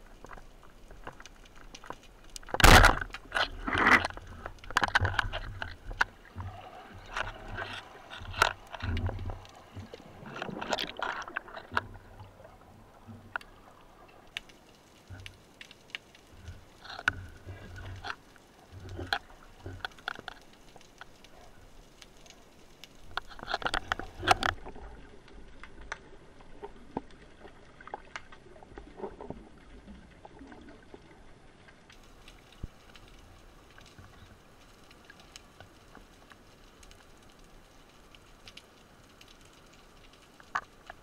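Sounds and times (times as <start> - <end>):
water rushing: 0.0 - 25.0
underwater clicks and crackles: 0.0 - 41.0.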